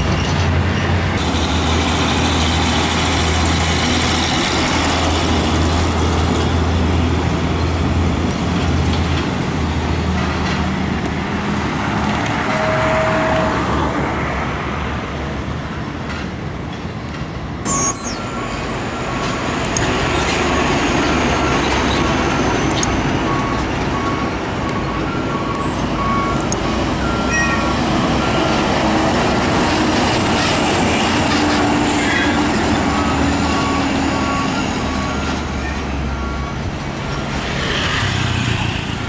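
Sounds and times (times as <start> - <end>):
diesel trucks driving: 0.0 - 39.0
short electronic beep: 17.7 - 18.7, 24.8 - 27.8.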